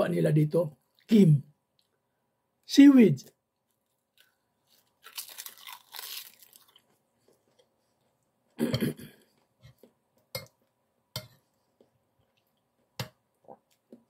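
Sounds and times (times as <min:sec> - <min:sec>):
crunching seaweed in mouth: 0:04.1 - 0:07.0.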